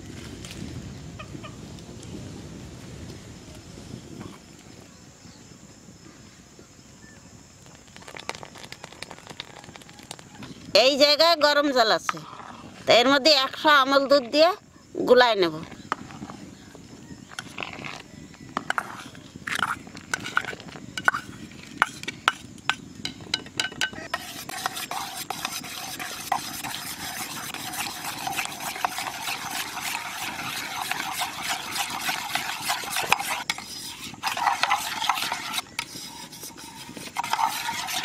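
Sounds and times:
spoon clinks and scrapes: 23.6s - 38.0s
metal spoon whisking in pot: 24.1s - 38.0s.

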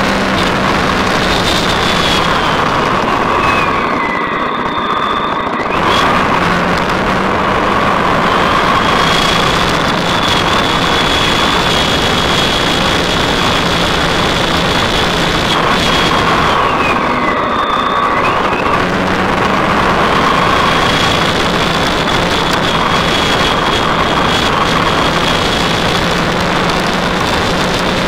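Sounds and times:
motorcycle engine running: 0.0s - 28.0s
road noise: 0.0s - 28.0s
wind noise on microphone: 0.0s - 28.0s.

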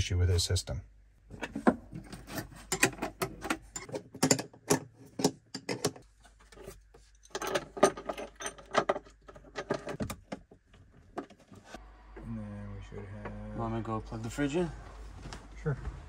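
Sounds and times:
metal nuts and washers clinking: 2.0s - 6.0s, 6.6s - 10.2s.

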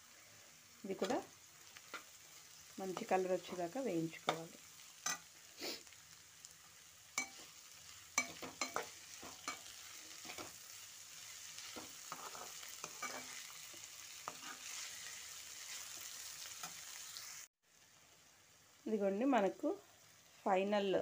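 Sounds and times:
vegetables sizzling in oil: 0.0s - 21.0s
spatula scraping and tapping pan: 2.9s - 5.3s, 7.2s - 7.6s, 8.2s - 10.6s, 11.6s - 14.8s.

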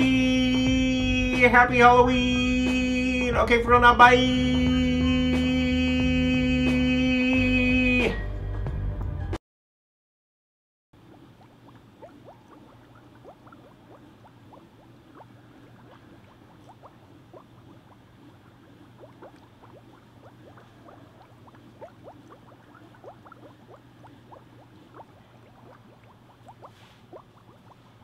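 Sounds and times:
water bubbling: 11.0s - 28.0s.

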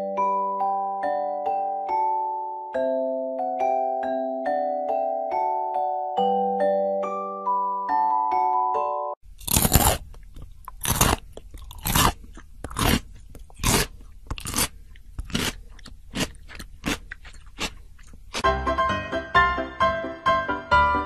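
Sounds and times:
animal chewing crunchy food: 9.4s - 18.4s.

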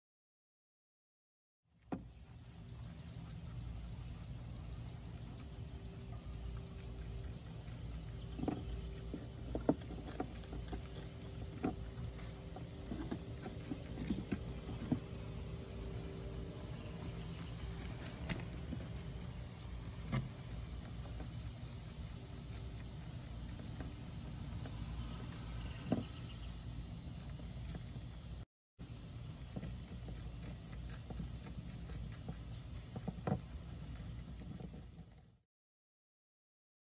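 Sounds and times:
low background hum: 1.8s - 35.4s
rabbits crunching lettuce: 1.8s - 35.4s.

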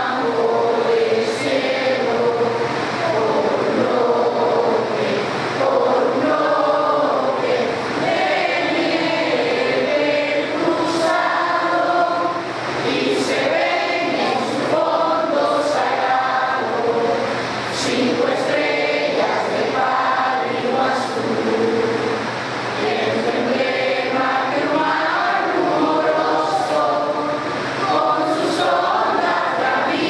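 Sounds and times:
group singing in unison: 0.0s - 30.0s.

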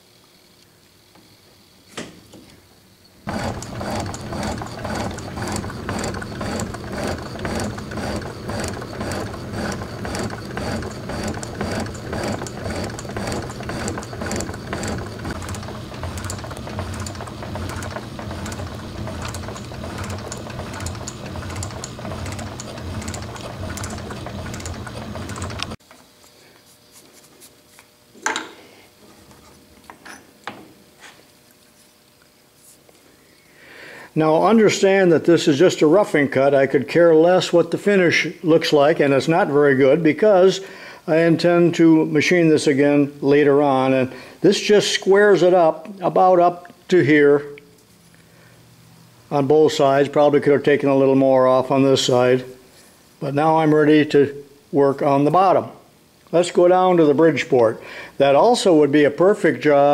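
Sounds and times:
metal shaper clattering: 3.3s - 25.8s.

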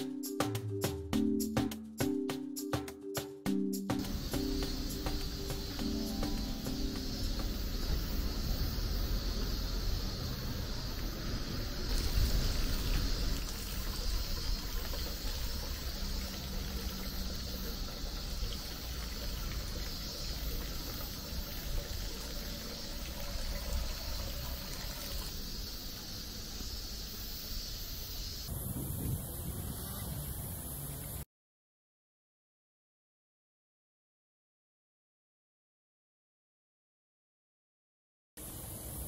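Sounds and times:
water running and trickling: 4.0s - 28.5s
steady low rumble: 6.3s - 15.8s.

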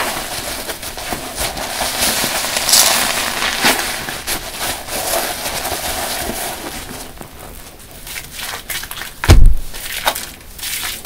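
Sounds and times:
sponges squelching in foam: 0.0s - 11.0s
loud low thump: 9.3s - 9.7s.

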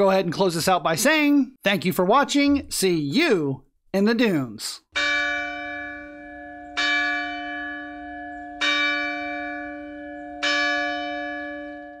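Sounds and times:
bell tolling: 5.0s - 12.0s.

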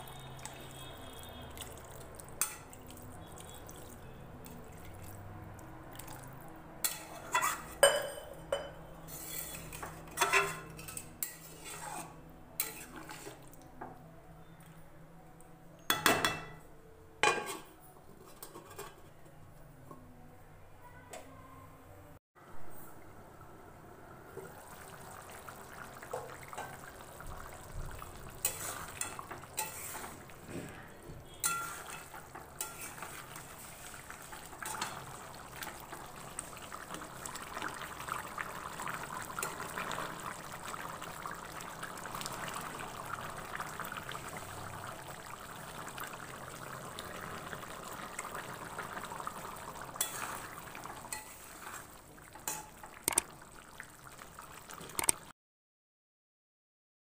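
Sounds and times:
curry bubbling in a pan: 0.0s - 8.3s, 9.0s - 13.5s, 24.3s - 55.3s
metal spatula scraping a pan: 6.8s - 13.4s, 17.2s - 19.3s, 28.4s - 35.1s, 50.0s - 52.8s.

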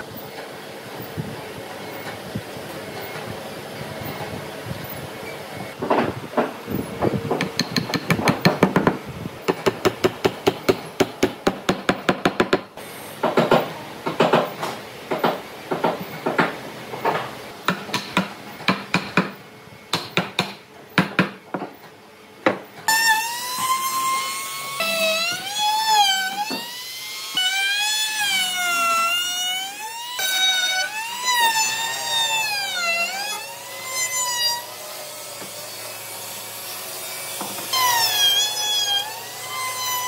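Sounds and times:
hammer striking wood: 7.3s - 14.5s, 17.7s - 21.7s.

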